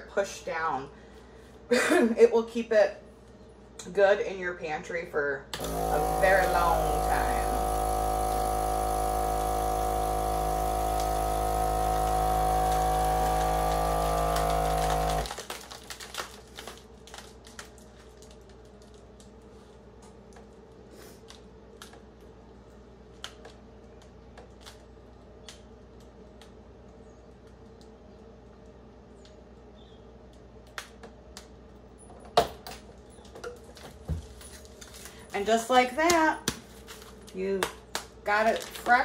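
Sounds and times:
vacuum sealer pump running: 5.6s - 15.5s.

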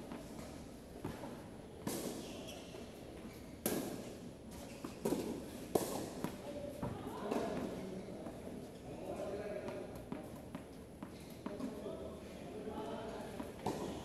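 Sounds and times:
tennis ball hit by rackets: 3.6s - 4.1s.

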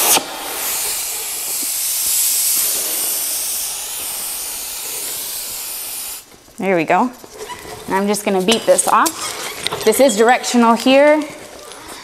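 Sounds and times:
oxygen jet of cutting torch: 0.0s - 6.3s
torch flame hissing: 0.0s - 6.6s.

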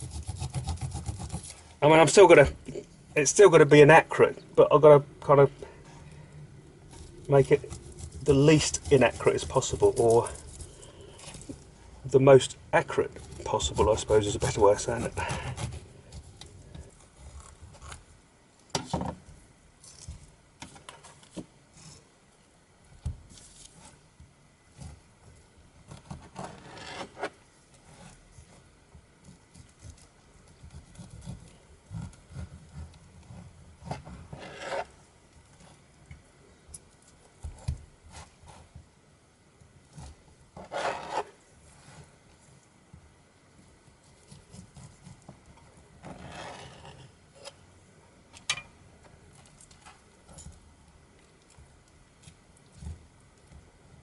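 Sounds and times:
knife sawing through pineapple: 0.0s - 1.6s, 7.5s - 10.8s, 13.3s - 15.8s, 33.9s - 34.9s, 40.6s - 41.3s.

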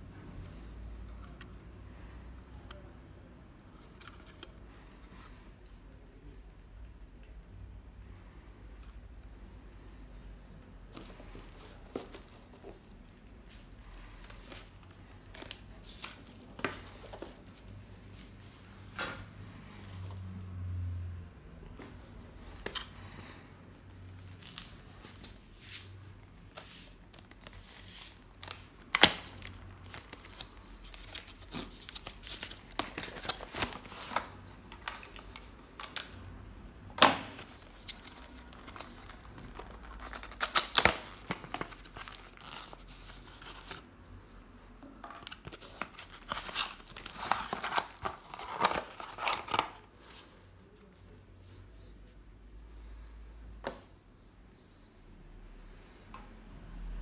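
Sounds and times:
plastic and paper crinkling: 24.2s - 44.1s, 44.8s - 51.9s.

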